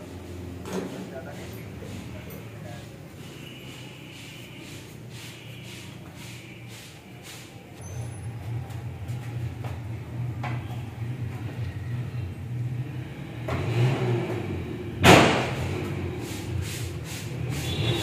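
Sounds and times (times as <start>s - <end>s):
sharp loud bang: 15.0s - 15.6s.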